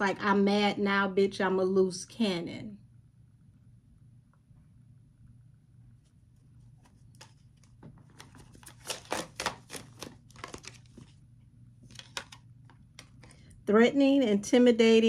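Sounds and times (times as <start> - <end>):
cards being shuffled: 6.6 - 11.2, 11.8 - 13.4.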